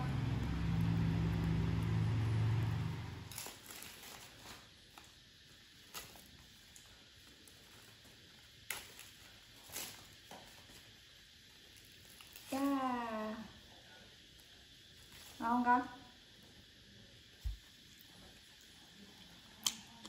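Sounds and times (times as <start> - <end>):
sharp crackles: 0.0 - 5.2
steady low hum: 0.0 - 20.0
leaf wrappers crinkling: 3.2 - 13.5.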